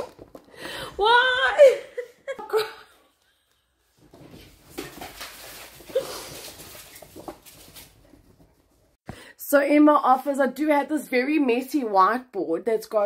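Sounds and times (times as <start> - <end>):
sniffs and shaky breaths: 5.8 - 7.1.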